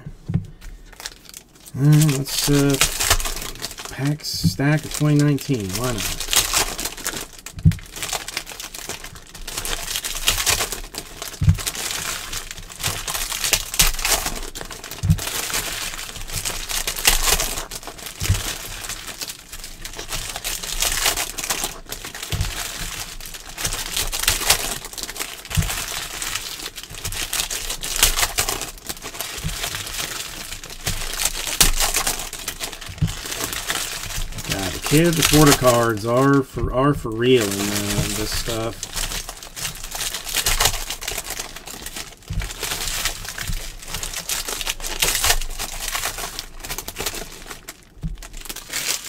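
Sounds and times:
foil wrappers crinkling and tearing: 0.0 - 49.0.

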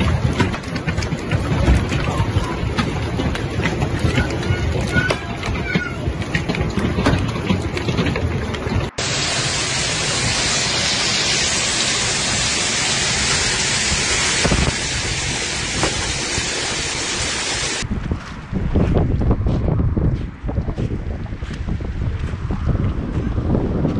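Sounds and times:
hail and rain pelting down: 8.9 - 17.8.

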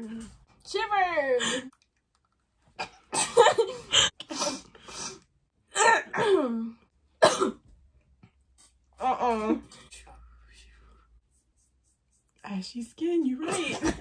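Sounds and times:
girl coughing and clearing throat: 2.8 - 4.6, 5.7 - 7.7, 13.4 - 14.0.

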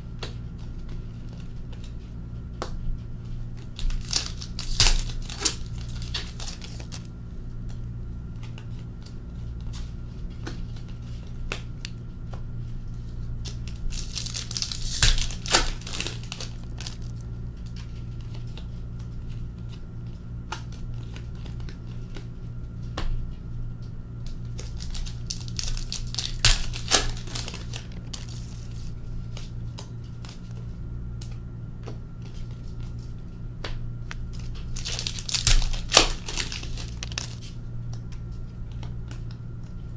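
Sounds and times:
cards shuffling and clicking: 3.5 - 7.8, 13.0 - 22.3, 24.2 - 39.8
wrappers crinkling and tearing: 3.6 - 7.2, 13.4 - 18.7, 24.4 - 30.6, 34.2 - 37.6.

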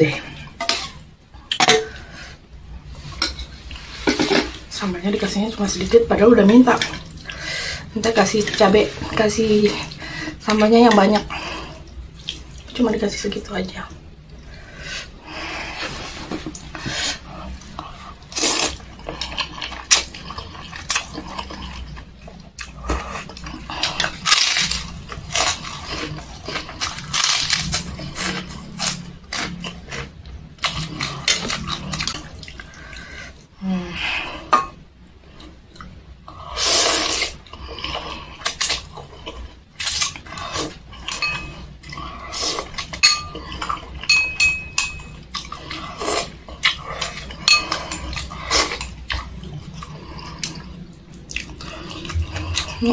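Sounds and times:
chewing: 15.7 - 33.4, 35.2 - 52.9
slurping noodles: 36.3 - 41.2.

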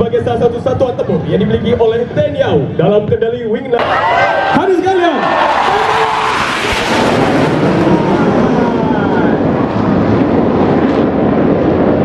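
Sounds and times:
jet fighters roaring overhead: 3.8 - 12.0.

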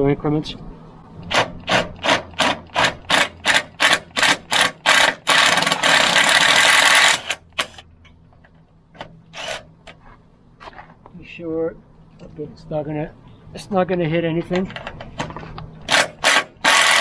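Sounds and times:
drill cutting through aluminium: 1.3 - 7.4, 15.9 - 17.0.

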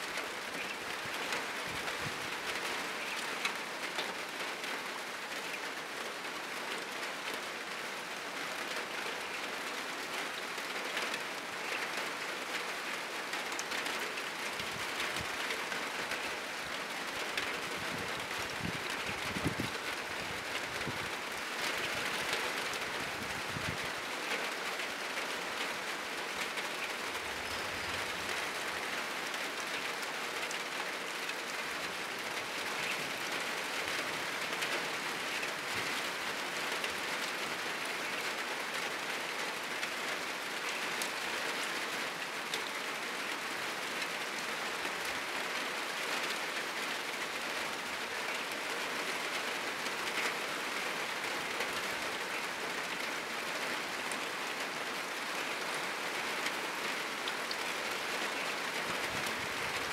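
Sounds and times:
heavy rain on a roof: 0.0 - 59.9.

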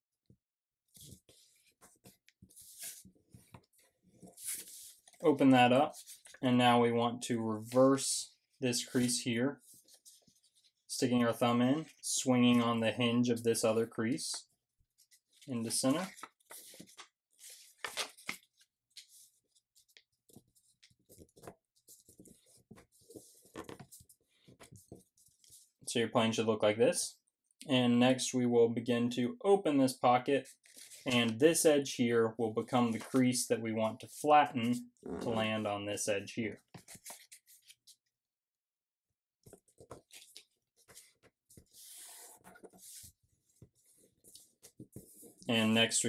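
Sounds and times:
paper rustling and scraping: 1.0 - 6.4, 15.0 - 25.8, 36.7 - 38.0, 39.5 - 45.5.

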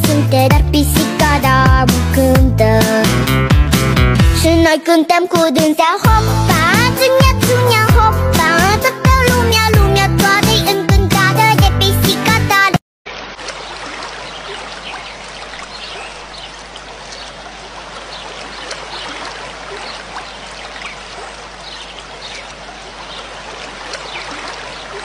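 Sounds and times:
trickling running water: 13.1 - 25.0.

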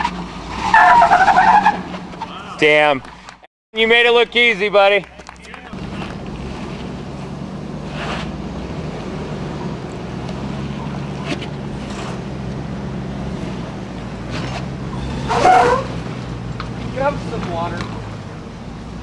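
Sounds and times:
engine running at low revs: 5.0 - 19.0.

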